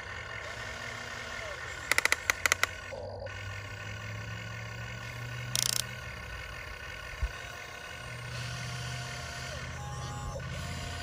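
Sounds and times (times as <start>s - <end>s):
electric motors humming: 0.0s - 11.0s
loud rattle: 5.5s - 6.0s.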